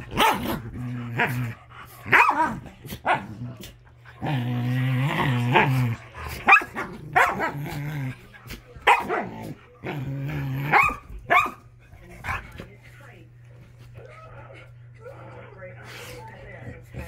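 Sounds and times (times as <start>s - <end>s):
dog growling: 0.0s - 11.1s.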